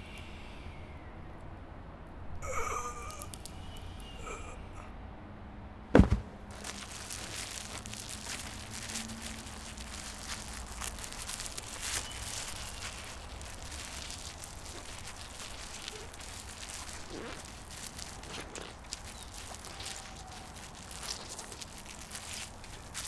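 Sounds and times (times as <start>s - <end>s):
crackling and rustling: 2.4s - 4.4s, 6.0s - 23.0s
small clicks: 3.1s - 4.1s
heavy thump: 5.9s - 6.4s.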